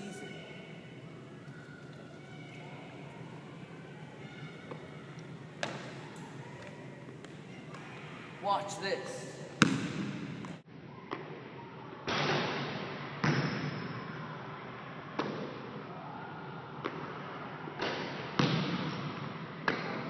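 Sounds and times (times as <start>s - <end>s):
basketball bouncing on hardwood floor: 9.6s - 10.6s.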